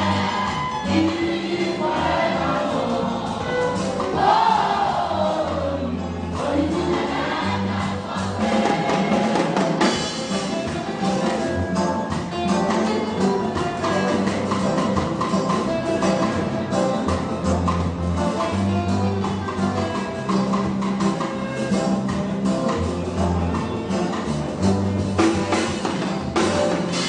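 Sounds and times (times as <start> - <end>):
choir singing gospel: 0.0 - 11.2.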